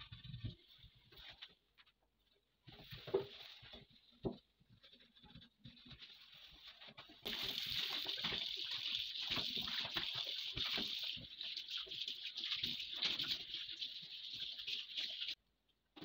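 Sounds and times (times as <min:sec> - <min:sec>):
water running into steel sink: 0:07.2 - 0:15.4.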